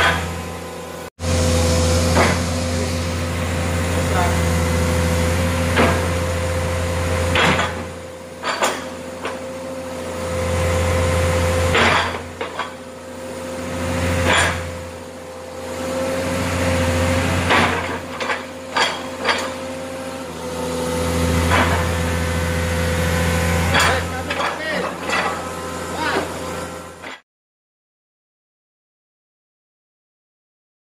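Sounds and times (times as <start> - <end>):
sharp metallic knocks and clanks: 0.0 - 0.6, 2.1 - 2.9, 5.6 - 6.4, 7.2 - 9.6, 11.6 - 12.9, 14.2 - 14.8, 17.3 - 19.8, 21.4 - 22.1, 23.6 - 25.6
excavator engine and hydraulics whine: 0.0 - 27.2.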